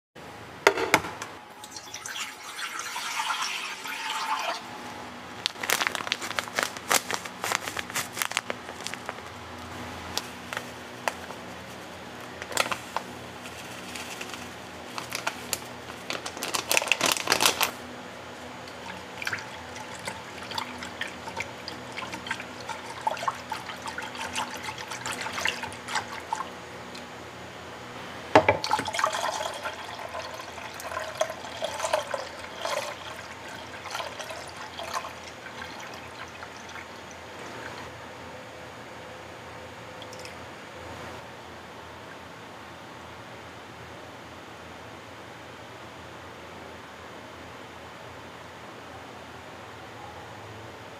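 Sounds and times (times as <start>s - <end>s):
liquid pouring and splashing: 1.6s - 4.7s, 18.6s - 26.5s, 28.6s - 37.9s.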